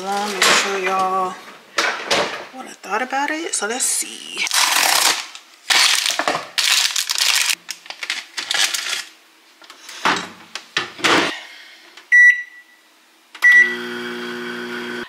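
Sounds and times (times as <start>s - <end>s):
packaging rustling: 0.0s - 1.0s, 4.4s - 9.2s
microwave beep: 12.1s - 12.8s, 13.4s - 15.0s.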